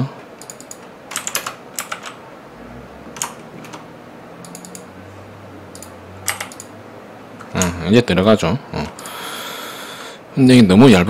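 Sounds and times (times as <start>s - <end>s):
keyboard key clicks: 0.4s - 2.2s.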